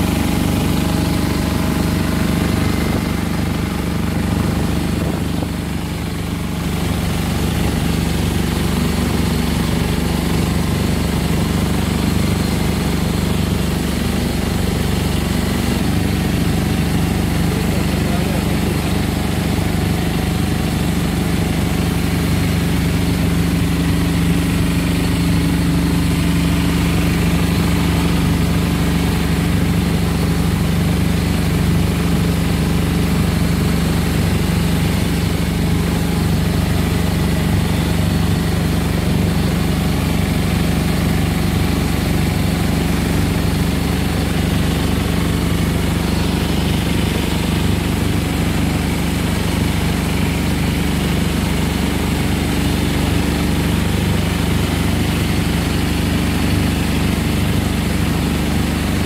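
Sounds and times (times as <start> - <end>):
small boat engine running: 0.0 - 59.0.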